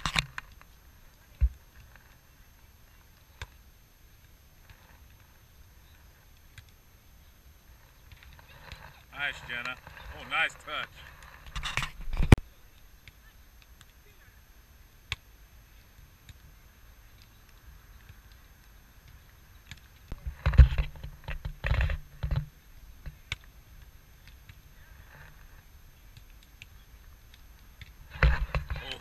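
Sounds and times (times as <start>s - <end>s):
quiet open-air ambience: 0.0s - 29.0s
players calling out: 9.1s - 11.1s.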